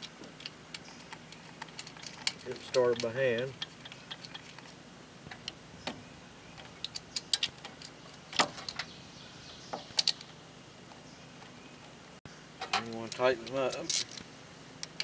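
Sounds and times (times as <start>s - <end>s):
light metallic clicks and taps: 0.0s - 4.7s.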